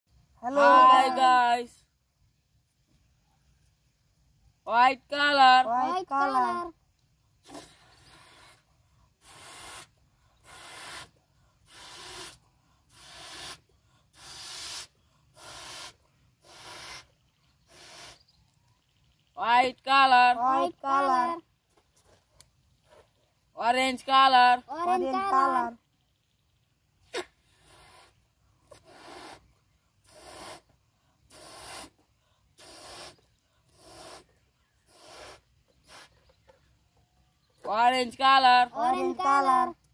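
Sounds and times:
breath puffs into a balloon: 7.4 - 18.2, 27.1 - 30.7, 31.3 - 32.0, 32.6 - 36.3.

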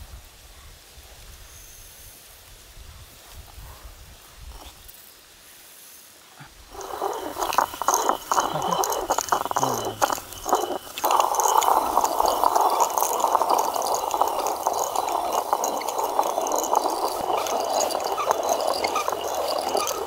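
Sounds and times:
stone quern grinding grain: 6.7 - 20.0.

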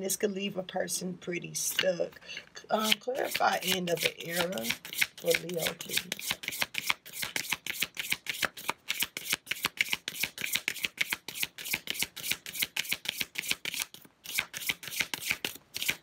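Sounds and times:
cards being shuffled: 2.8 - 16.0.

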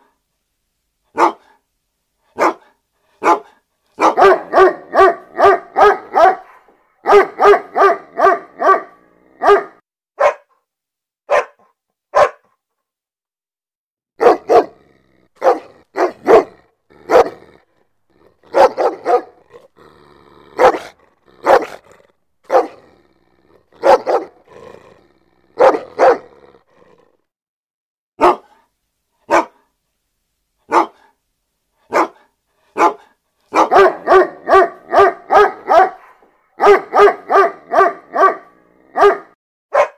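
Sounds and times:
dogs barking: 1.2 - 1.5, 2.4 - 10.5, 11.3 - 12.4, 14.2 - 14.8, 15.4 - 17.5, 18.4 - 19.7, 20.5 - 22.9, 23.7 - 24.5, 25.6 - 26.4, 28.2 - 28.5, 29.3 - 29.6, 30.7 - 31.0, 31.9 - 39.9.

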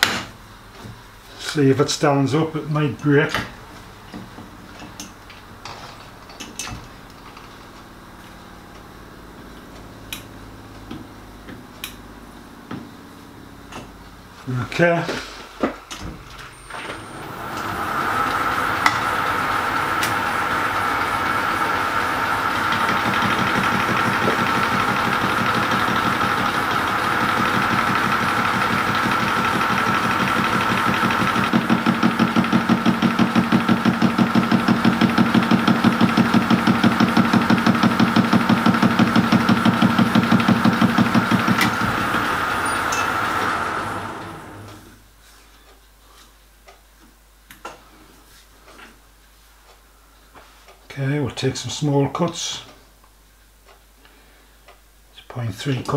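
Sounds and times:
metal lathe whining: 16.8 - 44.8.

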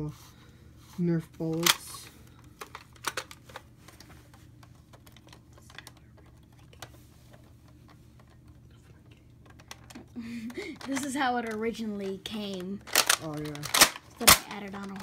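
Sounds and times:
low steady hum: 0.0 - 15.0
plastic toy blaster clicks: 12.9 - 15.0.

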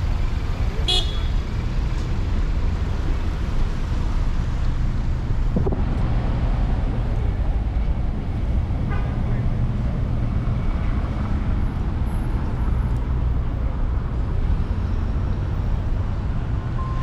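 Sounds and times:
street traffic rumble: 0.0 - 17.0.

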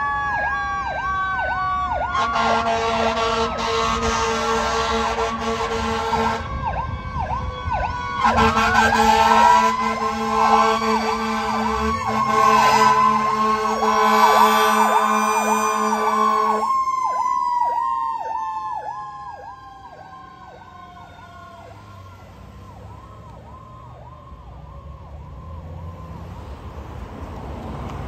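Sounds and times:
siren yelping: 0.0 - 2.7, 6.2 - 26.2
siren tone winding down: 7.0 - 26.2
deep horn tone: 8.2 - 16.6.

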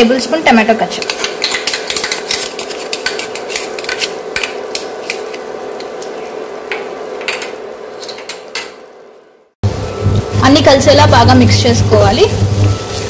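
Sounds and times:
metal spoon scraping and clicking: 1.0 - 6.1
vegetables sizzling in a wok: 9.7 - 13.0.

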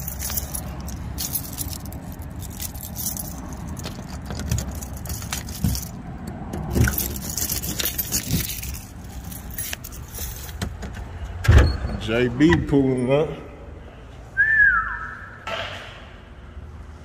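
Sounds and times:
keys jangling: 0.0 - 10.7.

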